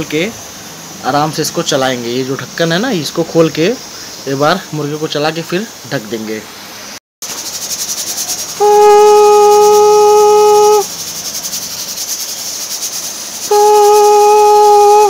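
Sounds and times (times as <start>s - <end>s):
steam hissing: 0.0s - 15.0s
pressure cooker whistle: 8.6s - 10.9s, 13.5s - 15.0s.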